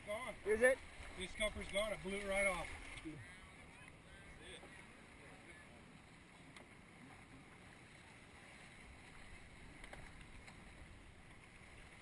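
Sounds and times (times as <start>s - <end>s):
faint clicks: 9.8s - 10.6s.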